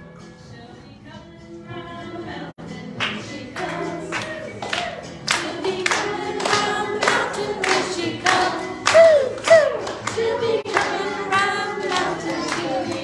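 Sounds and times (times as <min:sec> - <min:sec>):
group singing to music: 0:00.0 - 0:13.0
hands clapping to a beat: 0:02.9 - 0:13.0.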